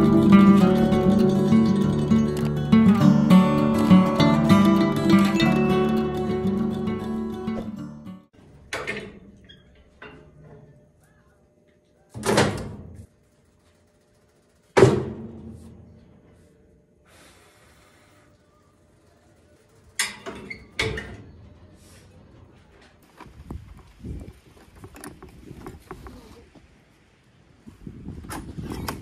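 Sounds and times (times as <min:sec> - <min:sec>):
metal door clanking shut: 0:12.2 - 0:13.0.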